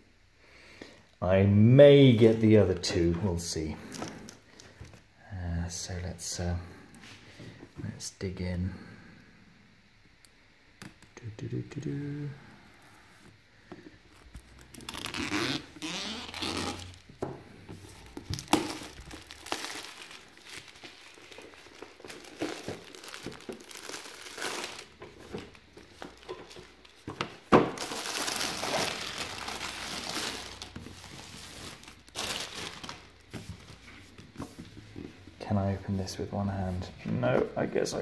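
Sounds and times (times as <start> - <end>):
plastic shrink-wrap crinkling: 14.0 - 17.1, 17.7 - 34.2
plastic wrap snapping: 18.0 - 33.3.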